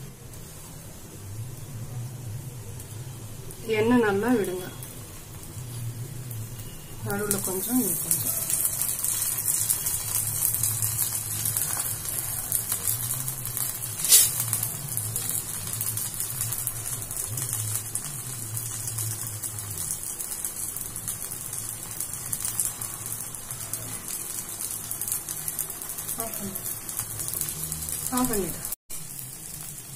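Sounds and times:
batter sizzling in oil: 0.0s - 29.9s.

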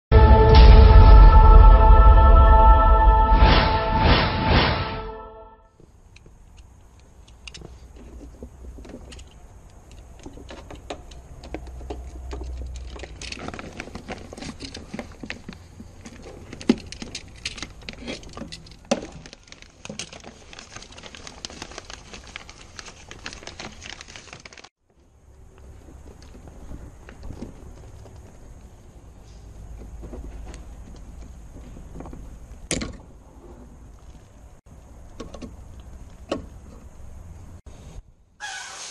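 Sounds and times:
plastic connectors clicking and rattling: 6.5s - 24.6s.

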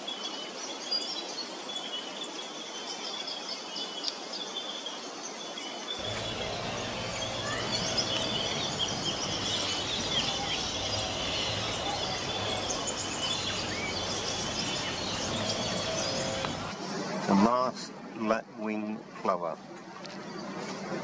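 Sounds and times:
small birds chirping: 6.0s - 16.8s
steady low hum: 6.0s - 16.8s.

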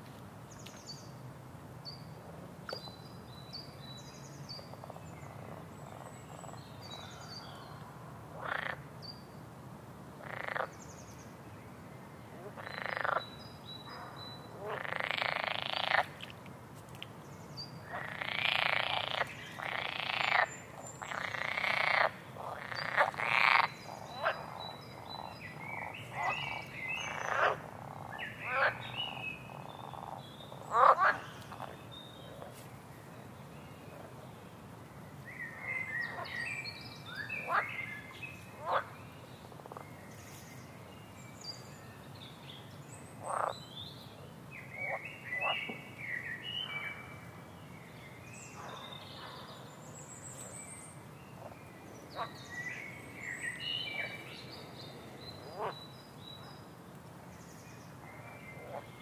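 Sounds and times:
frogs croaking: 4.6s - 8.9s, 10.2s - 10.8s, 12.4s - 16.3s, 17.8s - 32.6s, 35.5s - 40.0s, 43.1s - 43.7s, 44.7s - 47.0s, 51.4s - 55.9s, 58.5s - 59.0s.

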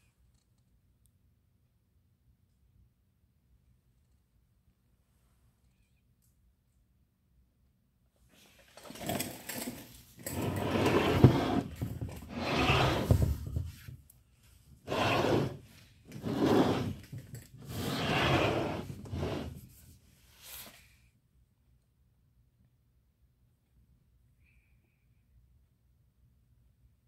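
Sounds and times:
wooden cabinet scraping on table: 9.0s - 13.9s, 14.8s - 19.7s.

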